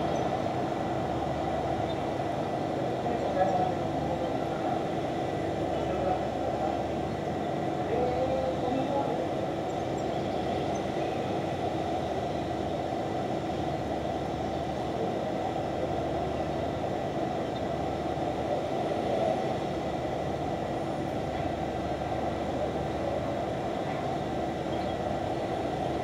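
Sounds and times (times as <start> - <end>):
city background rumble: 0.0 - 26.0.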